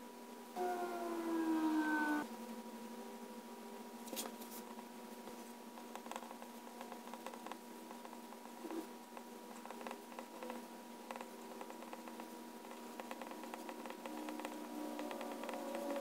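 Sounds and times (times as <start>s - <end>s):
tone sliding down in pitch: 0.6s - 2.3s
small ticks: 5.8s - 16.0s
pen nib scratching on paper: 9.6s - 16.0s.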